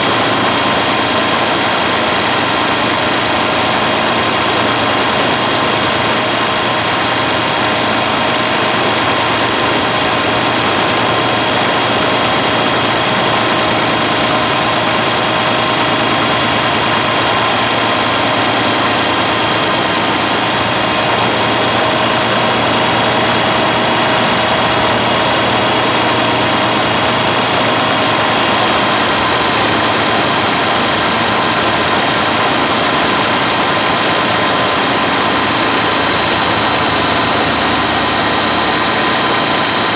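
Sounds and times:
helicopter engine and rotor drone: 0:00.0 - 0:39.9.

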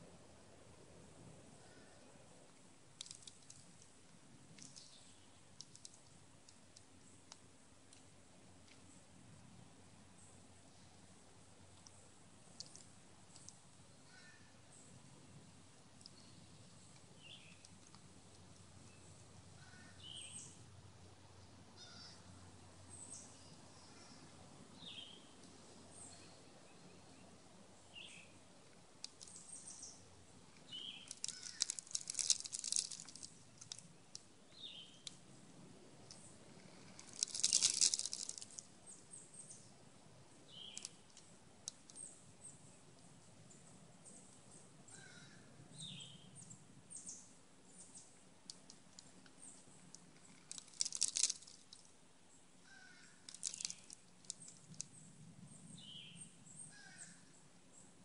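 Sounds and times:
squirrel crunching seeds: 0:02.9 - 0:08.8, 0:11.7 - 0:14.4, 0:28.6 - 0:35.3, 0:36.0 - 0:39.2, 0:40.5 - 0:42.1, 0:48.4 - 0:52.0, 0:52.6 - 0:55.1
bird chirping: 0:16.0 - 0:18.0, 0:18.7 - 0:20.6, 0:22.9 - 0:28.4, 0:29.2 - 0:35.2, 0:40.4 - 0:41.3, 0:43.4 - 0:48.2, 0:52.3 - 0:58.0.

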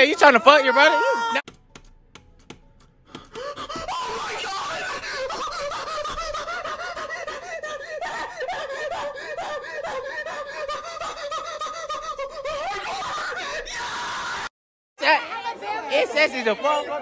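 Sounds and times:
young man giggling: 0:04.8 - 0:07.4.

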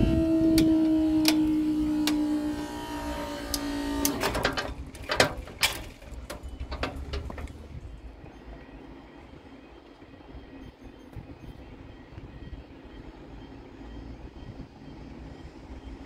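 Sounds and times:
level crossing warning tone: 0:00.0 - 0:16.0
barrier clicks and knocks: 0:03.5 - 0:07.6.

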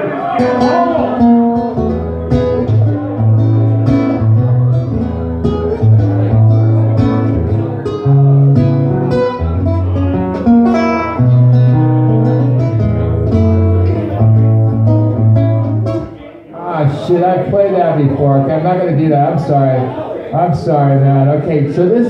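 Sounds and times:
fingerstyle acoustic guitar: 0:00.3 - 0:16.2.

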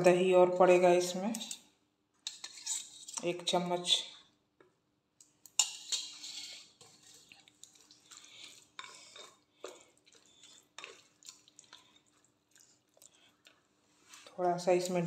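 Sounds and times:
spoon scraping a glass bowl: 0:02.3 - 0:03.3, 0:05.6 - 0:07.4, 0:08.4 - 0:09.4.

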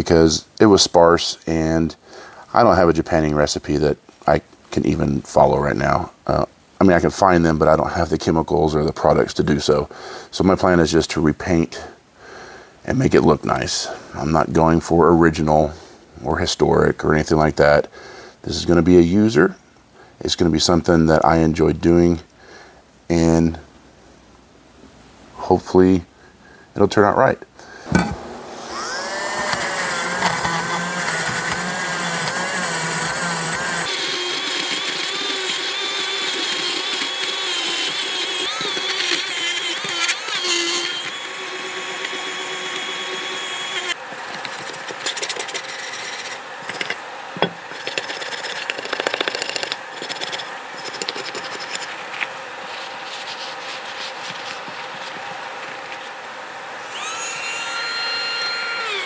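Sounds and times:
rotary tool whine: 0:27.9 - 0:51.8, 0:56.8 - 0:59.0
scraping rub on metal: 0:47.7 - 0:52.0, 0:52.7 - 0:54.8.

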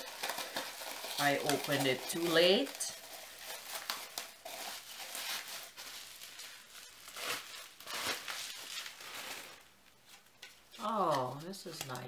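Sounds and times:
packaging crinkling and rustling: 0:00.0 - 0:12.0.

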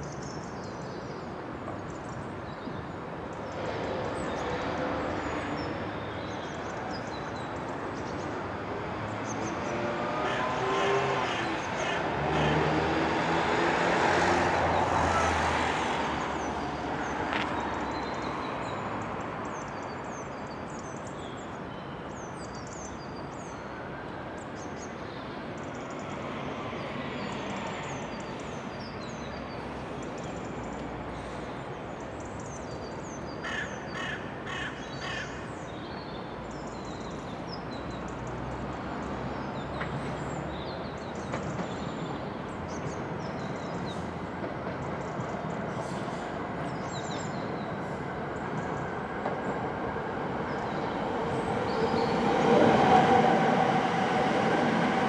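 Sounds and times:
crow cawing: 0:10.2 - 0:12.6, 0:33.4 - 0:35.4
broad rushing noise: 0:47.7 - 0:55.0.

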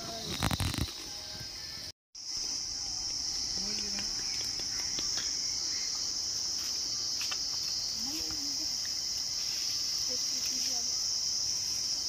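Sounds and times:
insects buzzing drone: 0:00.0 - 0:12.0
dry leaves crackling underfoot: 0:03.4 - 0:12.0.

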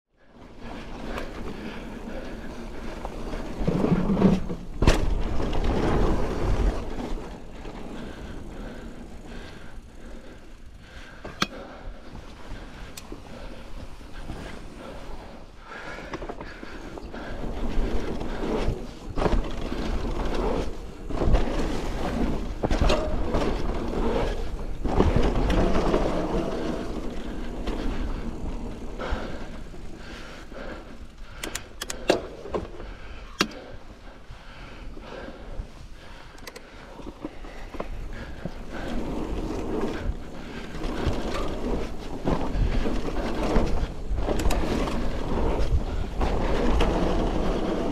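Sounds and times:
bike tyres rumbling on dirt: 0:00.2 - 0:31.4, 0:32.2 - 0:47.9
bike rattling and knocking: 0:00.7 - 0:33.7, 0:36.0 - 0:47.9
wind rumble on microphone: 0:34.0 - 0:47.9.

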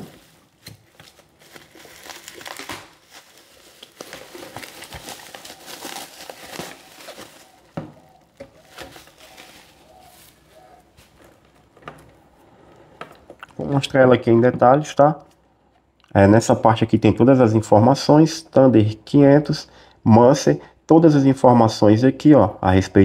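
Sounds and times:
bubble wrap crinkling: 0:00.0 - 0:11.8.

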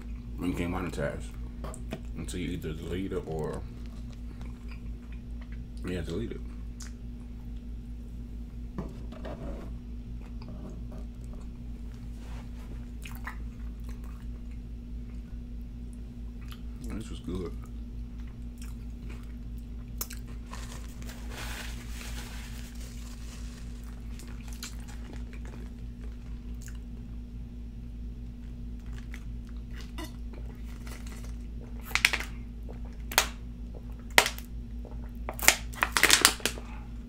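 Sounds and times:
chewing food: 0:03.6 - 0:05.8, 0:13.0 - 0:15.3, 0:17.6 - 0:21.2, 0:22.9 - 0:26.9.

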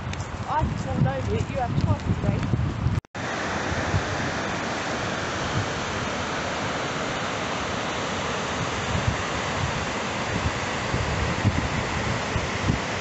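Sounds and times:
waterfall rushing: 0:03.2 - 0:13.0.

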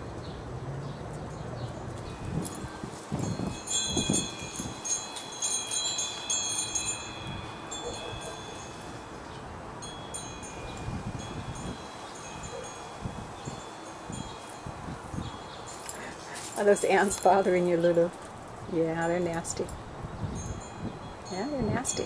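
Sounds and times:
high metallic chimes ringing: 0:02.1 - 0:18.0, 0:20.4 - 0:22.0.

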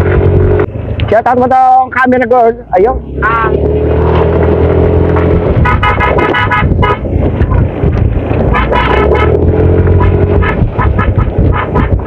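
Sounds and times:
vehicle engine running: 0:00.0 - 0:12.0
car horn tooting: 0:03.2 - 0:03.6, 0:05.5 - 0:07.7, 0:08.4 - 0:12.0.

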